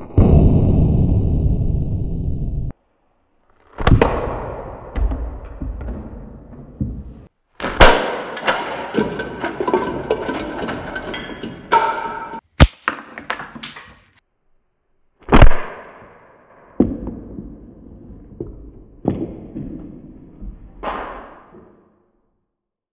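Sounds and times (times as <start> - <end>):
plastic cups clattering: 8.3 - 14.1.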